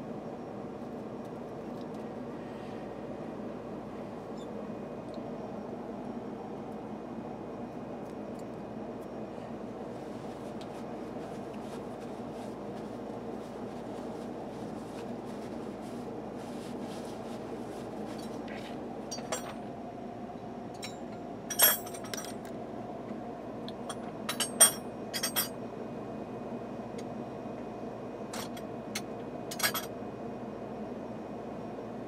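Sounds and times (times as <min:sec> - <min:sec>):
steady low hum: 0:00.0 - 0:32.0
metal tools clinking: 0:19.1 - 0:19.6, 0:20.8 - 0:22.4.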